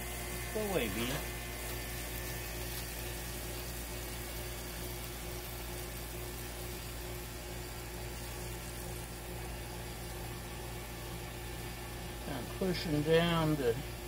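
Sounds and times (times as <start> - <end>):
burgers sizzling on a griddle: 0.0 - 14.0.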